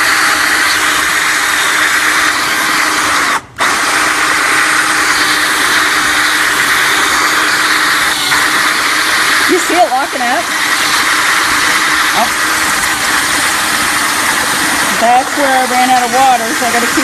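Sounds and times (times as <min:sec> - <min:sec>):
power drill grinding into glass: 0:00.0 - 0:17.0.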